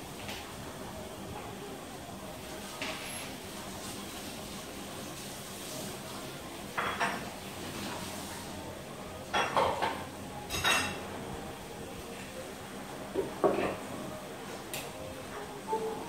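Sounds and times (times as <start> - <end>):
dishes and utensils clinking: 6.7 - 8.0, 9.2 - 11.2.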